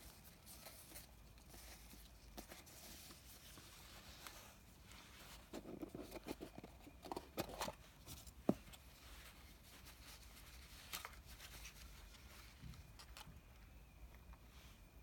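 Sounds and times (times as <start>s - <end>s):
handling cloth pouch: 0.0s - 15.0s
cardboard box rustling: 5.2s - 9.0s.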